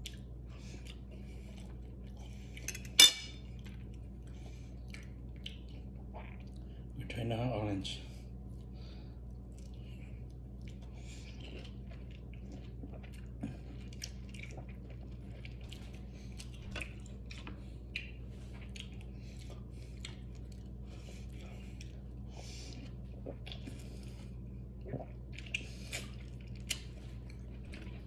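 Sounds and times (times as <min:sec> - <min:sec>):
person chewing food: 0:00.0 - 0:07.0, 0:08.2 - 0:28.0
steady low hum: 0:00.0 - 0:28.0.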